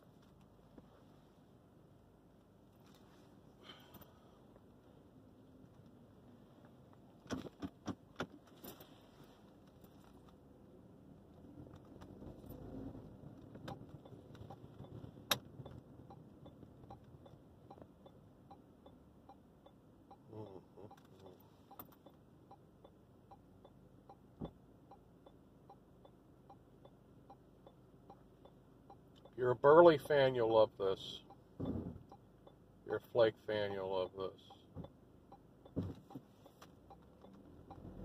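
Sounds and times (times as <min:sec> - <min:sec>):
car turn signal ticking: 0:13.4 - 0:29.4, 0:31.1 - 0:32.7, 0:34.0 - 0:38.0.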